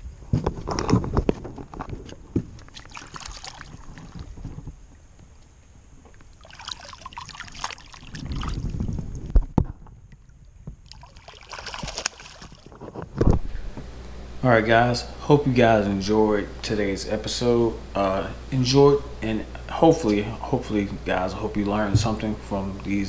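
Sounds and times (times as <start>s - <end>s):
water splashing: 2.6s - 4.4s, 6.2s - 12.9s.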